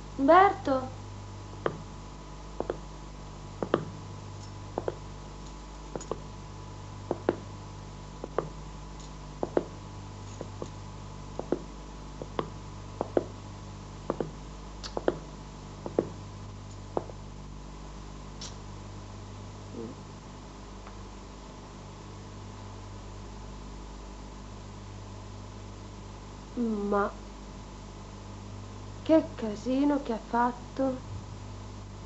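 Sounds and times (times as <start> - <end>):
low electrical hum: 0.0 - 32.0
footsteps on hard floor: 2.6 - 2.9, 3.6 - 4.0, 4.8 - 5.0, 5.9 - 6.3, 7.1 - 7.4, 8.2 - 8.6, 9.4 - 10.8, 11.4 - 13.4, 14.1 - 16.2, 17.0 - 17.2.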